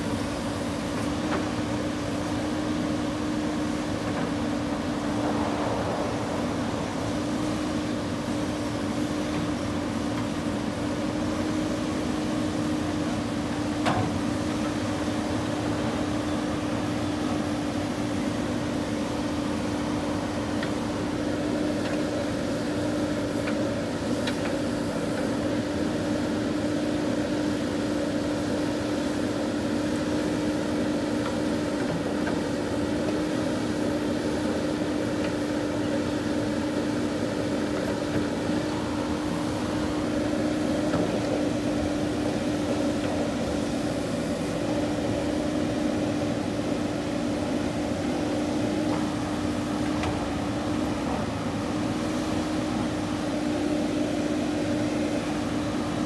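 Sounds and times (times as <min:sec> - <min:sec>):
diesel engine droning: 0:00.0 - 0:56.0.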